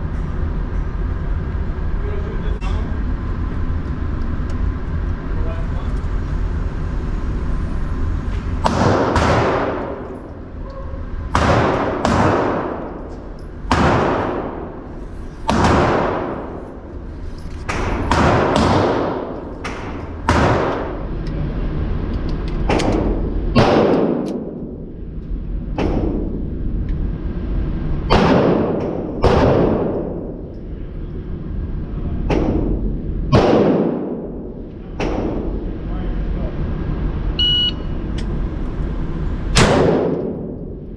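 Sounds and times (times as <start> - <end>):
pistol gunshots echoing indoors: 8.6 - 17.0, 17.6 - 21.2, 22.6 - 24.9, 25.7 - 26.5, 28.0 - 30.5, 32.3 - 35.7, 39.5 - 40.9.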